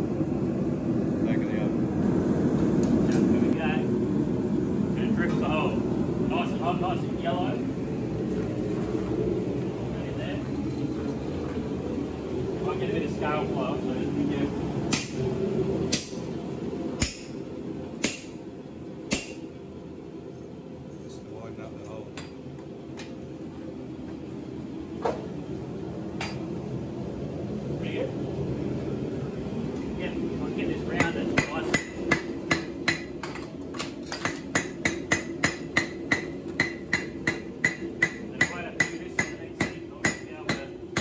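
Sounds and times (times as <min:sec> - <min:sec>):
steady low hum: 0:00.0 - 0:41.0
hammer striking metal on anvil: 0:14.9 - 0:15.2, 0:15.9 - 0:16.2, 0:17.0 - 0:17.3, 0:18.0 - 0:18.4, 0:19.1 - 0:19.4, 0:31.0 - 0:33.4, 0:34.1 - 0:41.0.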